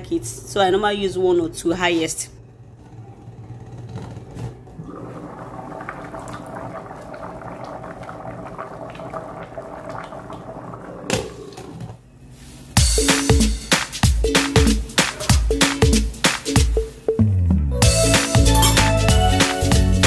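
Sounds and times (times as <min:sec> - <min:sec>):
pot bubbling: 0:04.7 - 0:12.0.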